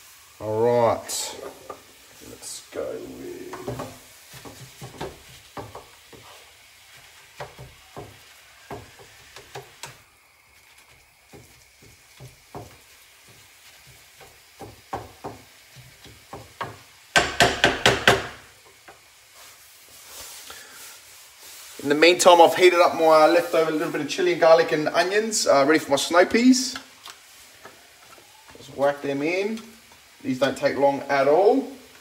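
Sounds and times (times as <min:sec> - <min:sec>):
faint sizzle: 0:00.0 - 0:32.0
spatula knocking against pan: 0:14.2 - 0:18.4.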